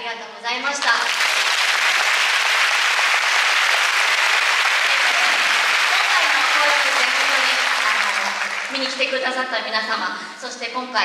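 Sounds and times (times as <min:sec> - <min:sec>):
dancers clapping along: 0:00.8 - 0:09.2
audience applauding: 0:00.9 - 0:09.2.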